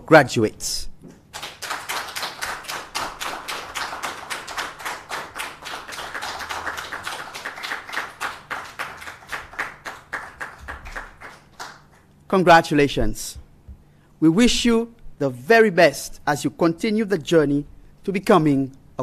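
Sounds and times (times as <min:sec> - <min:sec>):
hand clapping: 0:01.1 - 0:12.2.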